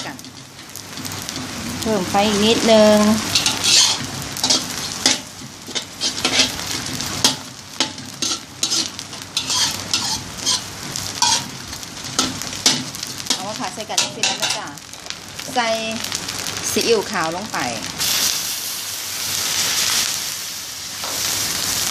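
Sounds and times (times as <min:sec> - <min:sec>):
spatula scraping a wok: 0:00.0 - 0:14.6
oil sizzling: 0:00.0 - 0:21.9.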